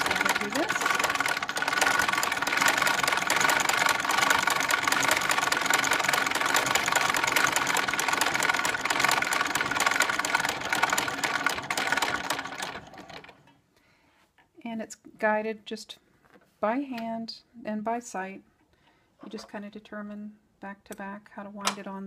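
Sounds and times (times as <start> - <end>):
sewing machine clattering and whirring: 0.0 - 13.6.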